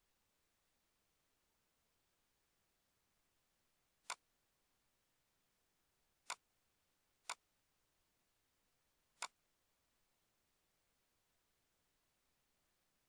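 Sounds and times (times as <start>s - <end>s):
faint background hiss: 0.0s - 13.0s
computer mouse clicks: 4.0s - 4.2s, 9.2s - 9.4s.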